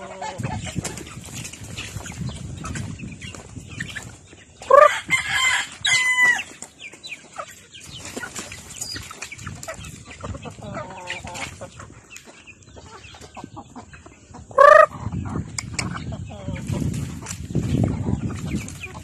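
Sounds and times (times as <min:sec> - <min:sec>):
chickens clucking: 0:00.0 - 0:19.0
loud pitched bird calls: 0:12.8 - 0:16.5.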